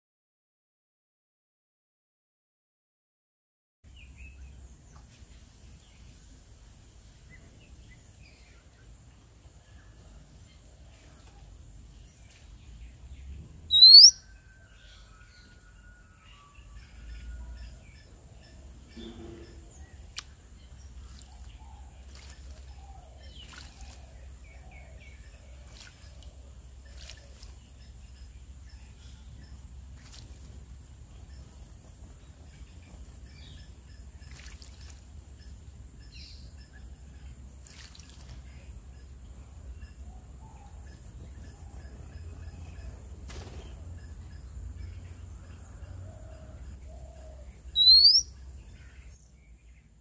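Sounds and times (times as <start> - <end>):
small birds chirping: 7.1 - 15.3, 16.6 - 50.0
low outdoor rumble: 16.7 - 50.0
bird splashing water: 19.9 - 28.6, 29.8 - 35.6, 37.5 - 38.8.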